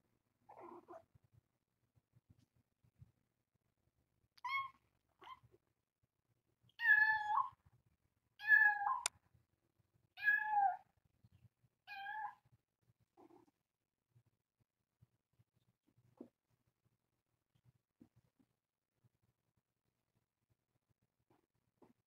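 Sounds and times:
kitten meowing: 8.4s - 9.1s.

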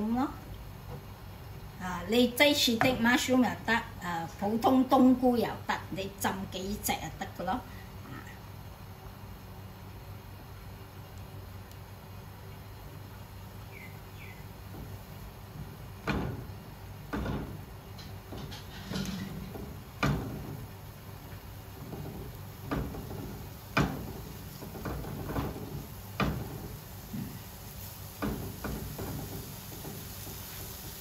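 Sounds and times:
spatula scraping and rustling: 14.6s - 31.0s
spatula knocking against pan: 21.8s - 27.4s.

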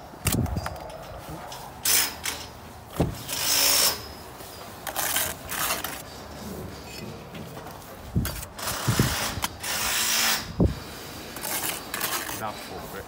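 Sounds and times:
trowel scraping wet mortar: 4.8s - 6.3s, 8.2s - 13.0s.

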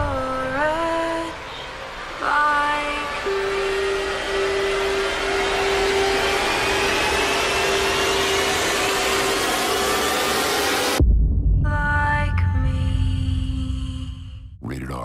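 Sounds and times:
rushing noise riser: 3.3s - 11.2s.

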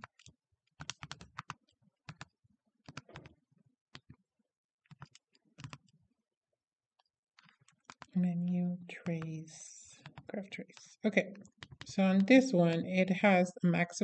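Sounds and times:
calculator keys clicking: 0.0s - 2.3s, 2.9s - 4.2s, 4.9s - 5.9s, 7.4s - 8.2s, 10.0s - 12.9s.

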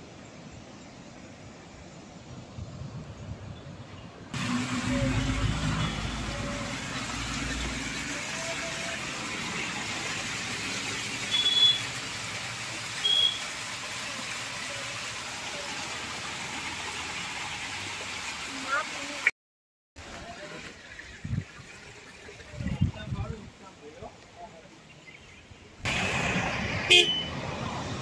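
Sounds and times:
stream water over rocks: 4.3s - 19.3s, 20.0s - 28.0s.

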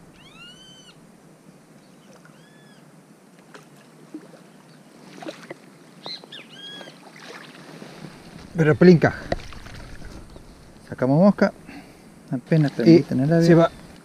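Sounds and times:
bird call: 0.1s - 1.0s, 2.0s - 2.8s, 6.0s - 7.0s.

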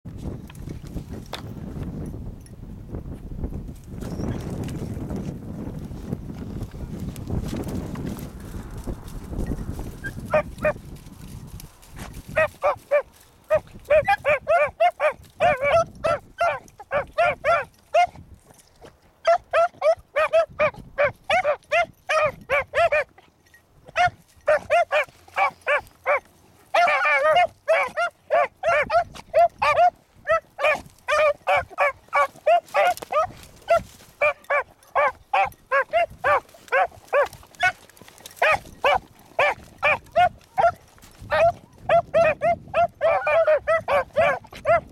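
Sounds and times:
dogs baying: 9.8s - 10.9s, 12.3s - 18.2s, 19.3s - 23.3s, 23.9s - 44.9s
drawn-out dog bawl: 9.8s - 10.9s, 12.3s - 18.2s, 19.2s - 44.9s.

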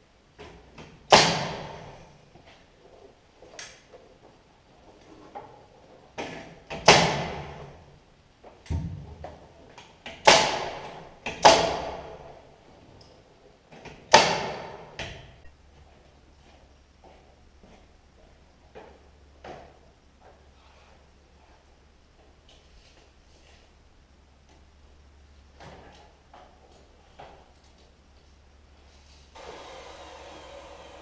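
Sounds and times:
nail gun shots: 1.1s - 1.8s, 6.7s - 7.6s, 10.2s - 12.2s, 14.1s - 14.9s.

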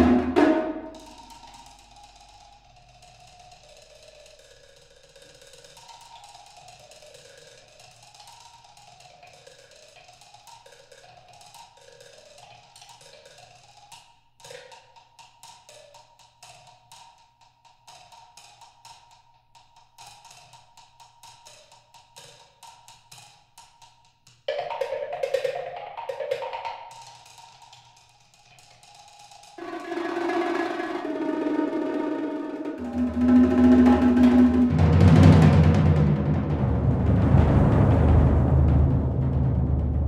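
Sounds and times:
wood blocks played with sticks: 29.6s - 35.4s.

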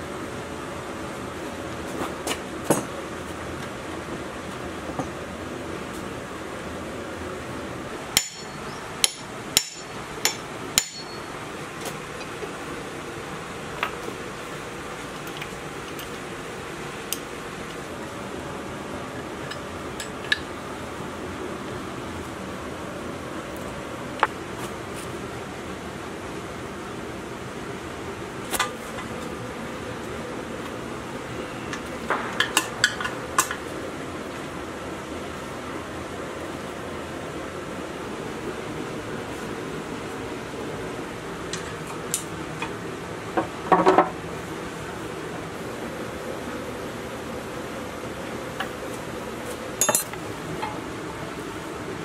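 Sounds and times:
hammer blows on metal: 8.2s - 11.3s
tools clinking on metal tank: 8.2s - 11.3s.

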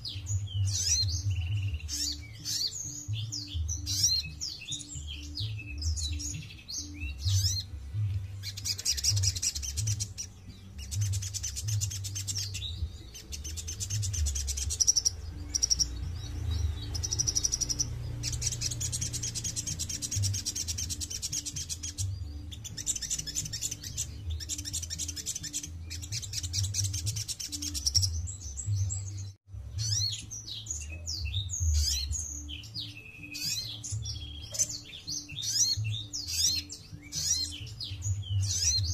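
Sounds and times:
bird trilling: 8.4s - 28.2s, 31.7s - 38.9s
sharp bird chirps: 8.4s - 28.2s.

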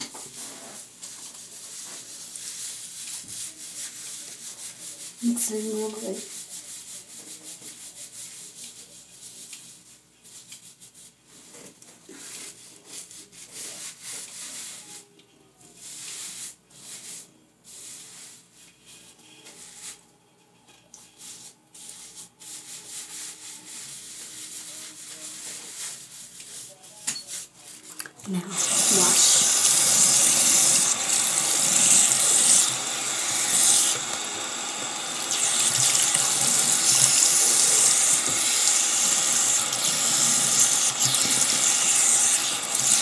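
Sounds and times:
hands scrubbing hair: 0.0s - 14.9s, 27.4s - 43.0s.

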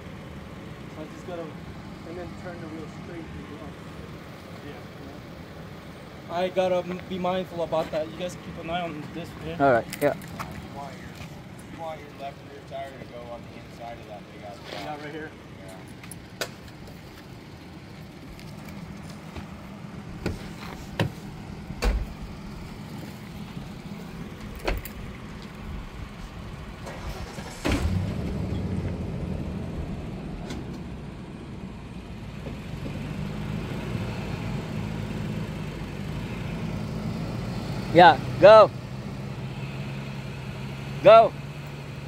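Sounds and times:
vehicle engines idling: 0.0s - 42.0s
sharp knocks and clunks: 20.2s - 22.2s.

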